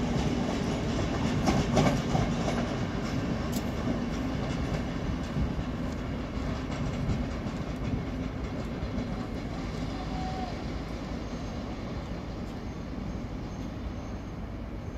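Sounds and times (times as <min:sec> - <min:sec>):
wheels clicking over rail joints: 0:00.0 - 0:09.9
train rumbling: 0:00.0 - 0:14.9.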